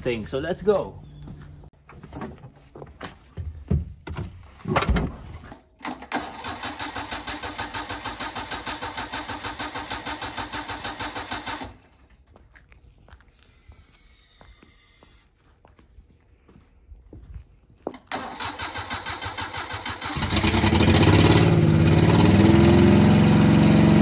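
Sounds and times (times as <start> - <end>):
engine starter cranking: 5.8 - 11.8, 17.9 - 21.4.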